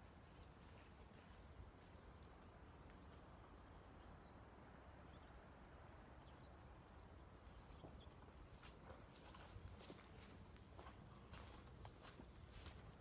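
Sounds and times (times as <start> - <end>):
soft footsteps: 7.8 - 13.0.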